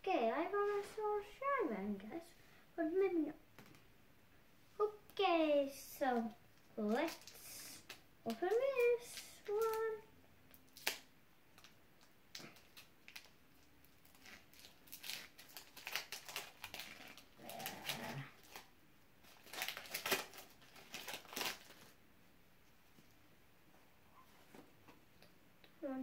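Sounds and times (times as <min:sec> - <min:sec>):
foil wrapper crinkling: 0:06.9 - 0:22.0.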